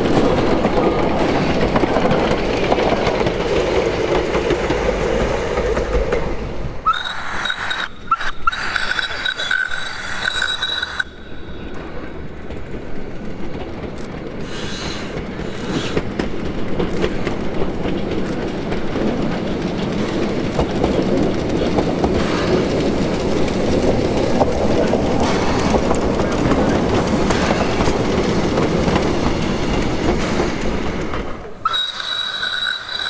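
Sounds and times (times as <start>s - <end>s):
railcar wheels on rails: 0.0s - 33.0s
high whistling tone: 6.9s - 11.9s, 31.6s - 33.0s.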